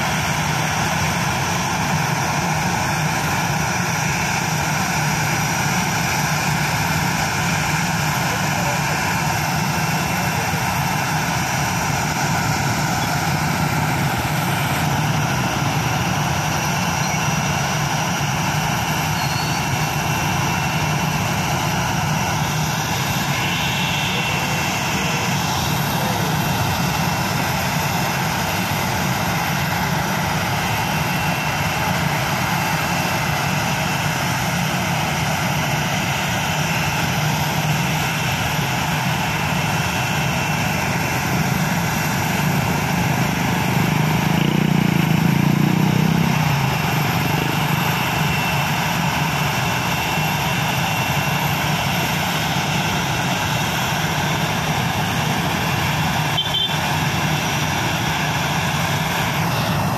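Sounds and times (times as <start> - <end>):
high whine: 0.0 - 59.9
jet engines running: 0.0 - 59.9.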